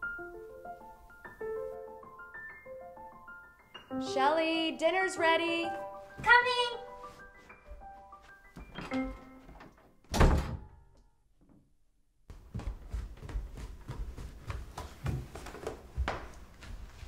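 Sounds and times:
footsteps down wooden stairs: 0:06.0 - 0:10.0, 0:12.3 - 0:17.0
door shutting with a thunk: 0:08.8 - 0:10.7.

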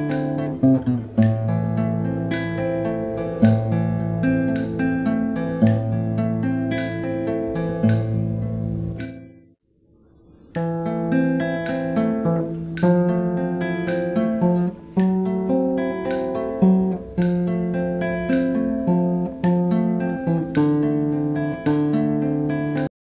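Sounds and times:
acoustic guitar strumming: 0:00.0 - 0:09.5, 0:10.3 - 0:22.9.

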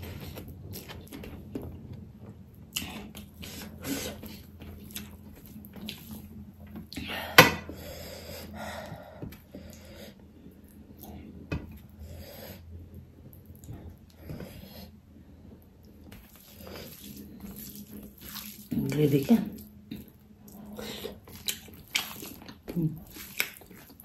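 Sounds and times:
chewing and wet mouth sounds: 0:00.0 - 0:07.1, 0:08.8 - 0:24.0.

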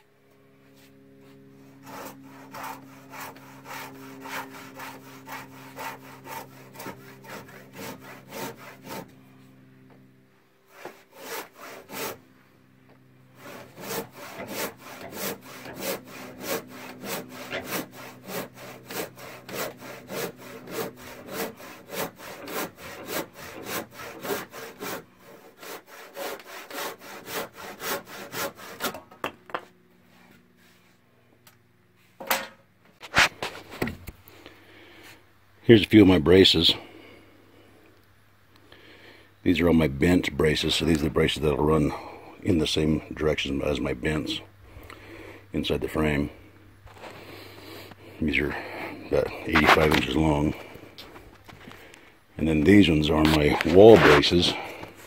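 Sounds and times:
hand saw cutting wood: 0:00.7 - 0:09.5, 0:10.6 - 0:12.3, 0:13.2 - 0:29.6, 0:33.0 - 0:33.9, 0:46.9 - 0:51.8, 0:52.4 - 0:55.0.

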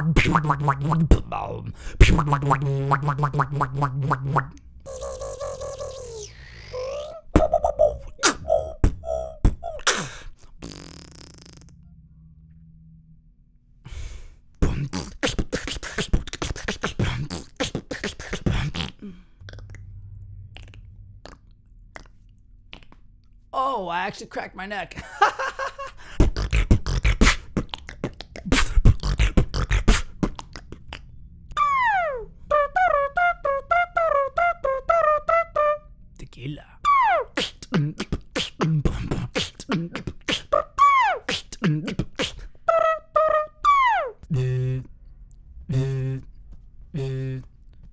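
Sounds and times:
beatboxing: 0:00.0 - 0:11.8, 0:14.6 - 0:19.9, 0:20.6 - 0:23.1, 0:26.2 - 0:44.9, 0:45.7 - 0:46.3, 0:46.9 - 0:47.5
low hum: 0:00.0 - 0:15.0, 0:16.2 - 0:23.6, 0:25.0 - 0:36.9, 0:44.2 - 0:47.9
mouth trumpet imitation: 0:02.0 - 0:11.8, 0:31.6 - 0:35.9, 0:39.4 - 0:44.3
man talking: 0:23.6 - 0:25.0.

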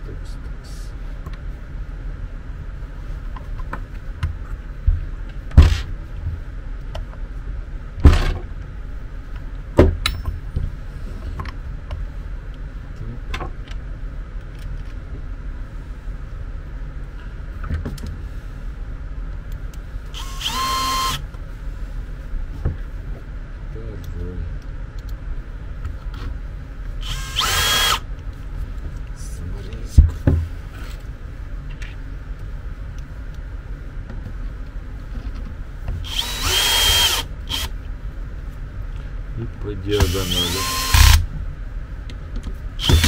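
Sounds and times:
sharp knocks of parts fitted: 0:09.8 - 0:10.4
cordless drill running: 0:20.2 - 0:21.2, 0:27.0 - 0:28.0, 0:36.1 - 0:37.7, 0:40.0 - 0:41.2, 0:42.8 - 0:43.0.

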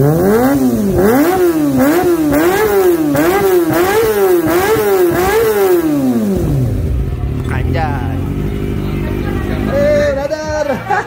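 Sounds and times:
motorcycle engine revving: 0:00.0 - 0:10.4.

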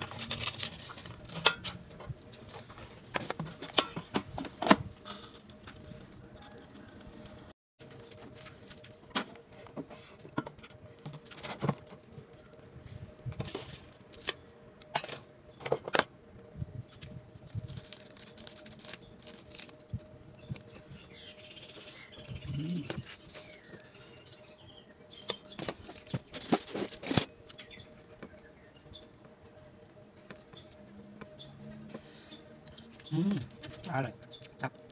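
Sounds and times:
stiff leaf crackling: 0:00.0 - 0:01.4, 0:17.5 - 0:20.7.

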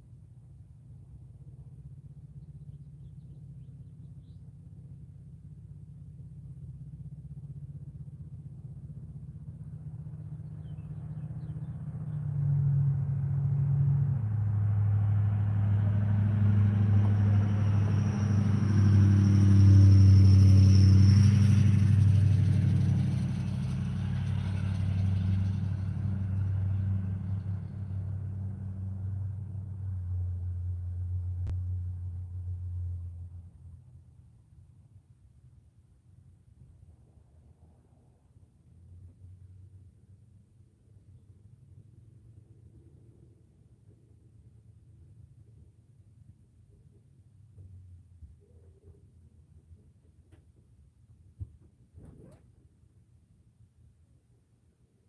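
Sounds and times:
truck driving past: 0:01.4 - 0:34.2.

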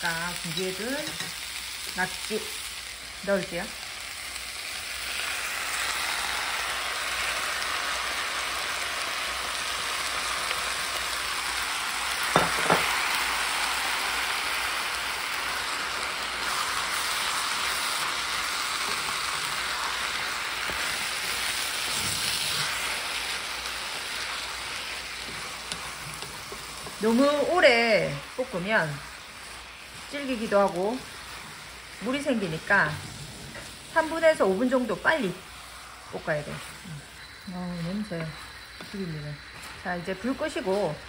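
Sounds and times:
food sizzling in a frying pan: 0:00.0 - 0:41.0
wooden spatula stirring: 0:24.2 - 0:27.9, 0:36.3 - 0:41.0.

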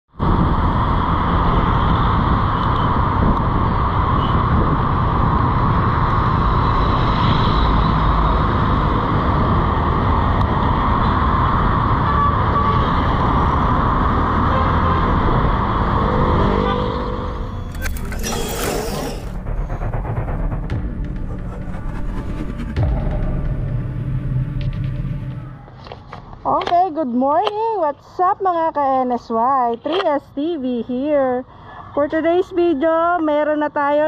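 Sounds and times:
passing traffic: 0:00.1 - 0:34.0
scooter engine and road noise: 0:00.2 - 0:19.8.

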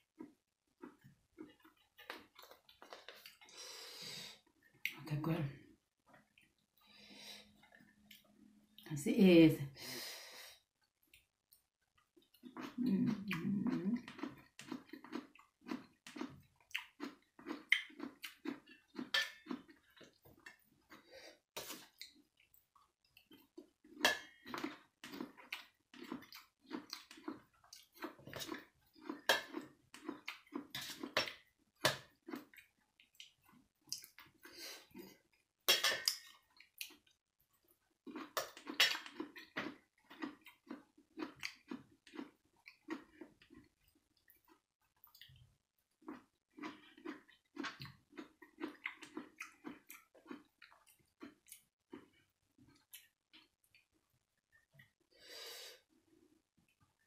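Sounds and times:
wet chewing and lip-smacking: 0:10.8 - 0:21.0, 0:21.6 - 0:55.0.

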